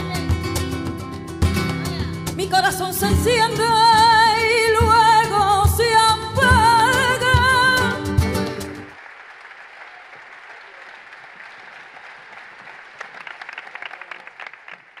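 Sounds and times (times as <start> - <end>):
audience applause: 8.9 - 15.0.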